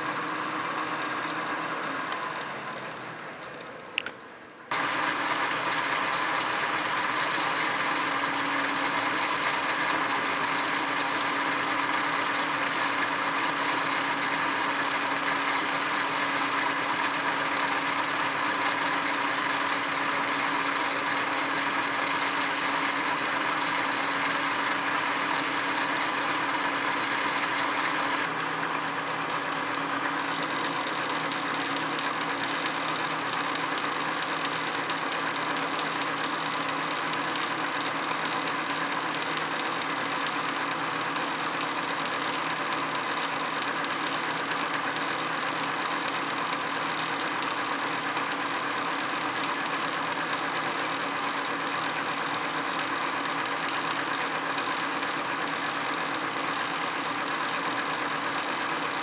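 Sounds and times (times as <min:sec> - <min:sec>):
lathe running with gear whine: 0:00.0 - 0:59.0.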